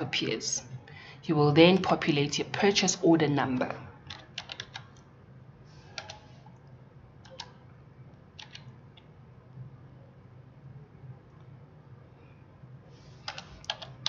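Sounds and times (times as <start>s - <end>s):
low steady hum: 0.0s - 14.0s
computer keyboard keys tapping: 4.1s - 5.1s, 5.9s - 6.3s, 7.2s - 7.6s, 8.4s - 9.1s, 13.2s - 14.0s.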